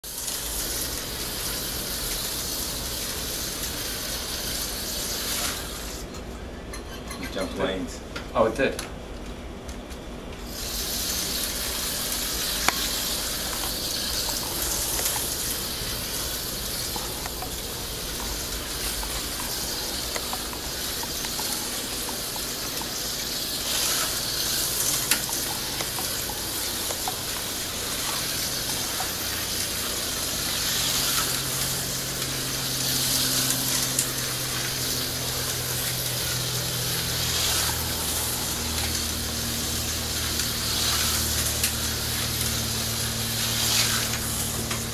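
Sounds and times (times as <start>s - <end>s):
slot cars whirring: 10.5s - 44.9s.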